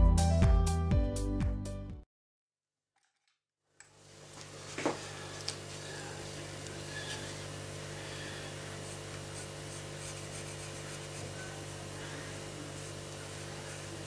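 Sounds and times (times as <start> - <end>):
steady low hum: 4.0 - 14.0
pencil scratching on wood: 8.4 - 14.0.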